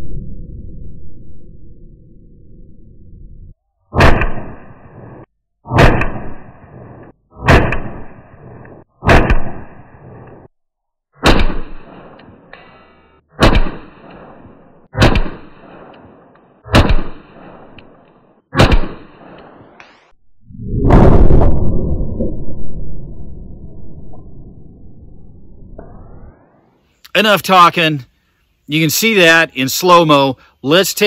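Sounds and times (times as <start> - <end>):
pistol shots: 9.0 - 9.6, 11.2 - 12.2, 13.4 - 19.8.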